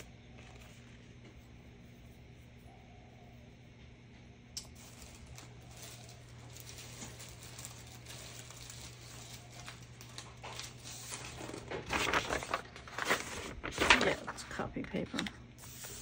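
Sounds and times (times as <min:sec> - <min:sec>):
paper rustling: 0:00.3 - 0:01.4, 0:04.8 - 0:16.0.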